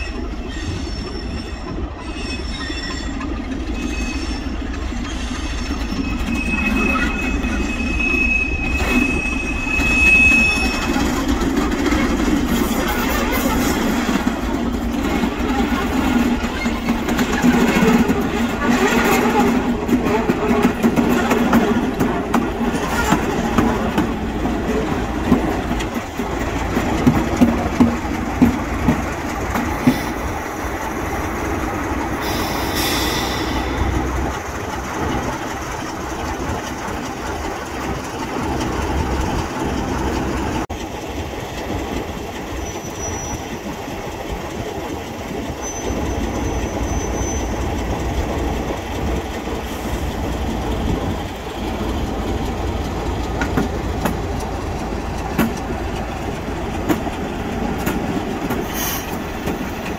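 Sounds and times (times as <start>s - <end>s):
high wheel squeal: 0.0s - 14.3s, 29.8s - 34.7s, 42.5s - 43.9s, 45.3s - 52.7s
diesel locomotive rumbling past: 0.0s - 59.9s
wheels clicking over rail joints: 9.9s - 59.9s.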